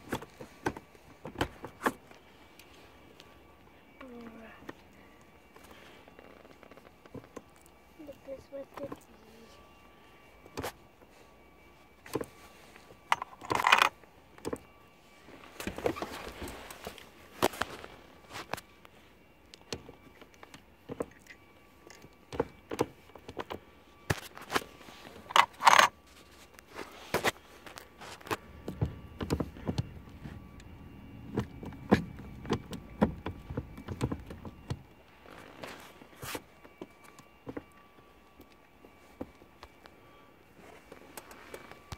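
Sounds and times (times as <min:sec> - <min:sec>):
gear shifter clicks and clunks: 0:00.0 - 0:02.7, 0:12.0 - 0:14.7, 0:19.5 - 0:25.9, 0:27.1 - 0:36.4.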